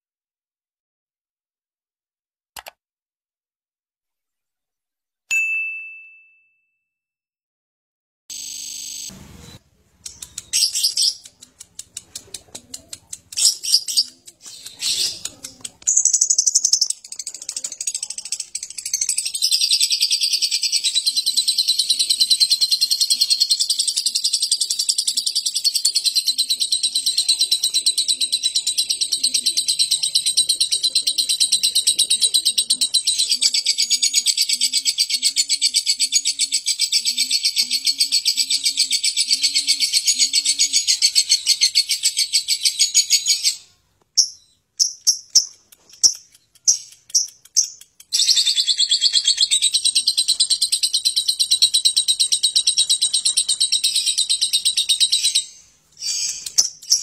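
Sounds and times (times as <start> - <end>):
lovebird rattling chatter: 10.1 - 19.7.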